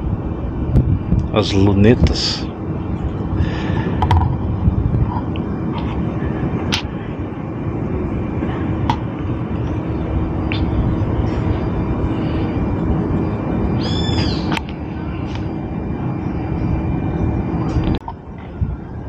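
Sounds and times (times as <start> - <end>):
wind buffeting microphone: 0.0 - 19.0
bird chirping: 13.8 - 14.5.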